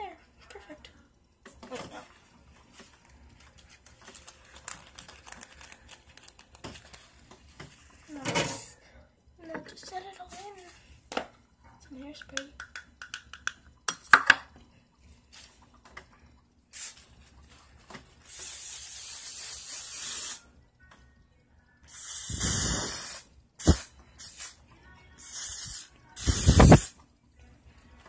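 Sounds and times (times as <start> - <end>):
hairspray hissing bursts: 18.3 - 20.4, 21.9 - 24.6, 25.2 - 27.0.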